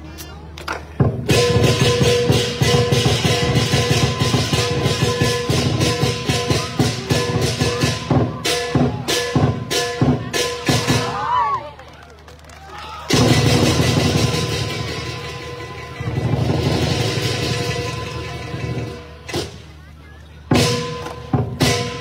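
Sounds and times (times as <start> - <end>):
percussion band drums and cymbals: 0.1 - 11.7, 13.0 - 22.0.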